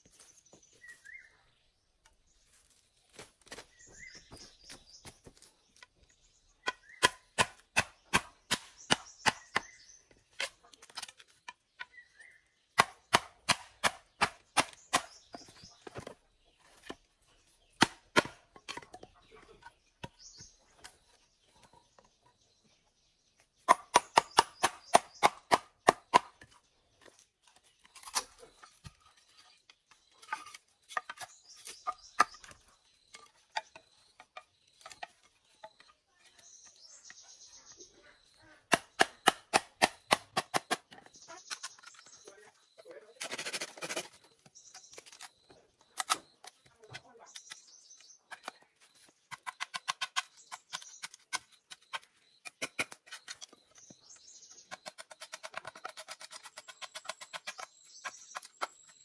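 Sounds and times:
birds chirping: 0.0s - 59.0s
hand tool striking bamboo: 6.6s - 9.8s, 12.8s - 16.1s, 17.8s - 19.0s, 23.7s - 26.6s, 38.7s - 42.1s.

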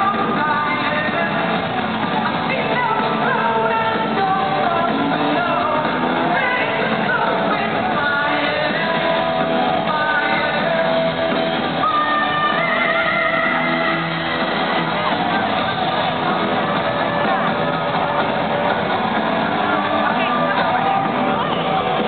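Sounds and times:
woman singing: 0.0s - 15.1s
live rock band: 0.0s - 22.0s.

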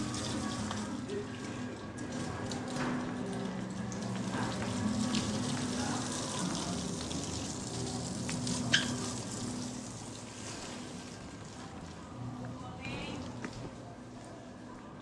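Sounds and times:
water spraying and splashing: 0.0s - 1.2s, 1.9s - 12.0s.

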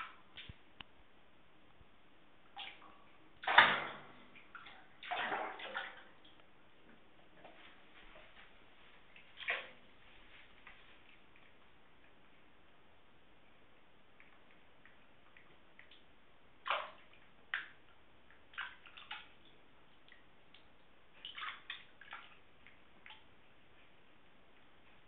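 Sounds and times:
bathwater splashing: 2.5s - 12.3s, 14.2s - 24.0s.

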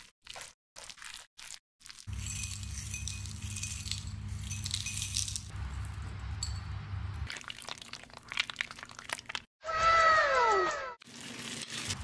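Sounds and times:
cornflakes pouring and rattling: 2.1s - 5.5s.

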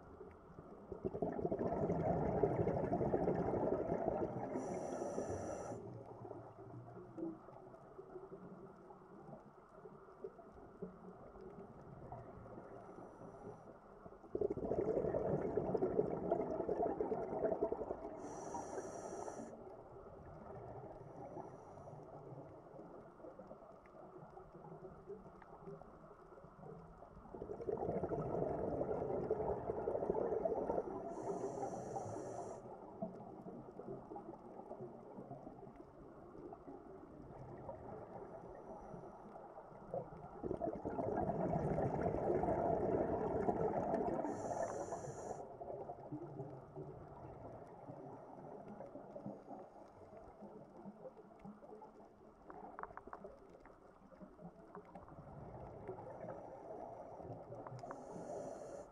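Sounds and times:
underwater background: 0.0s - 58.9s
exhaled bubbles rushing underwater: 0.6s - 5.4s, 14.2s - 18.6s, 27.2s - 52.0s, 52.6s - 58.2s.

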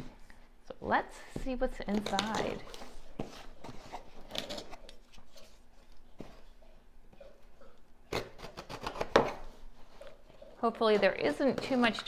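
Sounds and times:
box packaging rustling: 1.9s - 5.6s.

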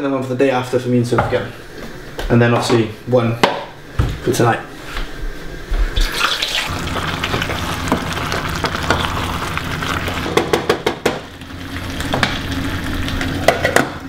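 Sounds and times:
sauce simmering and sizzling: 6.4s - 14.0s.

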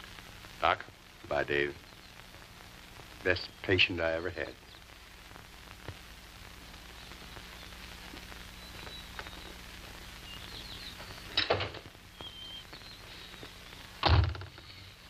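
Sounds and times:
faint outdoor ambience: 0.0s - 15.0s
high bird chirps: 10.2s - 11.4s, 12.1s - 13.8s.

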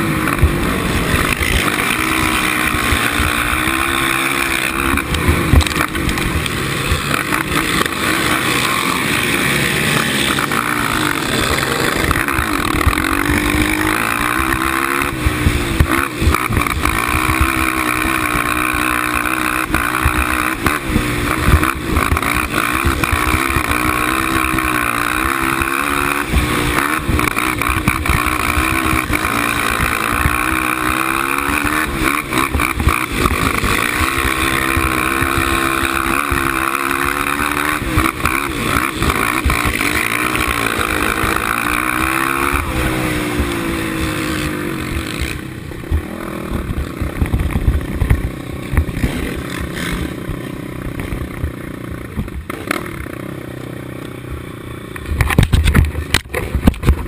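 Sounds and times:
quad engine revving: 0.0s - 57.0s
knocks and clatter: 55.0s - 57.0s.

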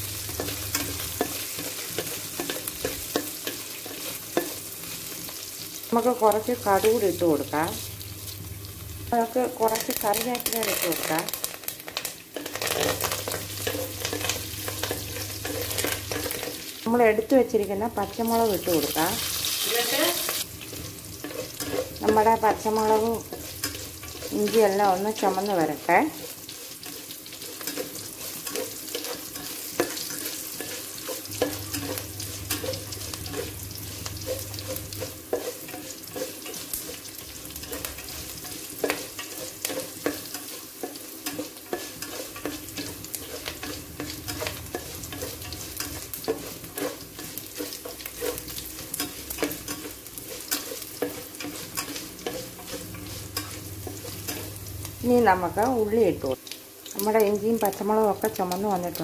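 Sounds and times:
food sizzling in oil: 0.0s - 59.0s
spatula scraping metal pan: 20.7s - 24.8s, 26.4s - 54.6s.

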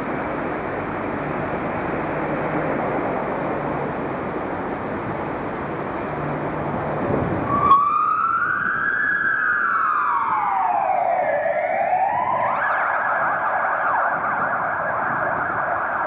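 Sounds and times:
electronic siren wailing and yelping: 7.5s - 16.0s.

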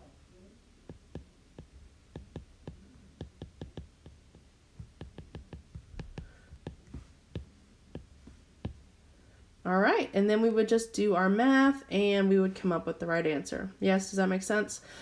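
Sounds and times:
stylus tapping on glass screen: 0.9s - 8.8s.

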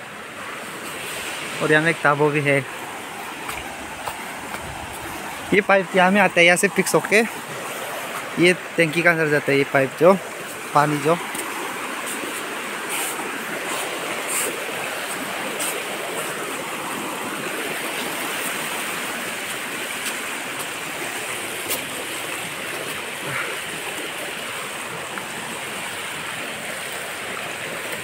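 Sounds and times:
water rushing over rocks: 0.0s - 28.0s.

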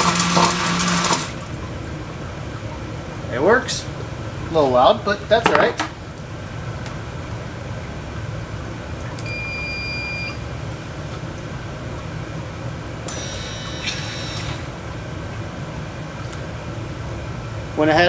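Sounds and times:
sump pump humming: 0.0s - 18.0s
high alarm beeps: 9.2s - 10.4s.

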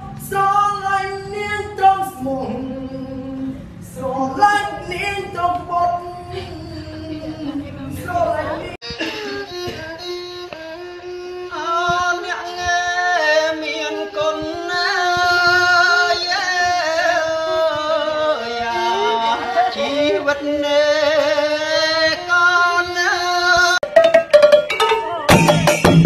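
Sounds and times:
bowed fiddle melody: 4.4s - 23.6s
person singing: 11.4s - 23.8s.

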